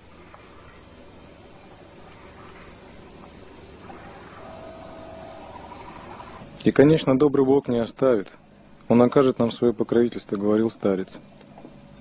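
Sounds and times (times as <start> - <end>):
insects chirring: 0.0 - 7.5.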